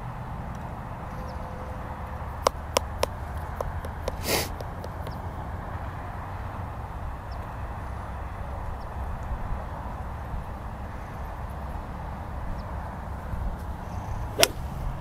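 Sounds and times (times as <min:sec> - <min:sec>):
low outdoor rumble: 0:00.0 - 0:15.0
golf club striking ball: 0:02.4 - 0:05.2, 0:14.3 - 0:15.0.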